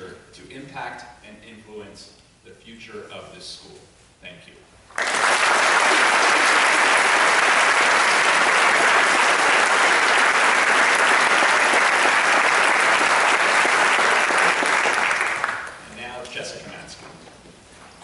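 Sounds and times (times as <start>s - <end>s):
audience applauding: 4.9s - 15.8s.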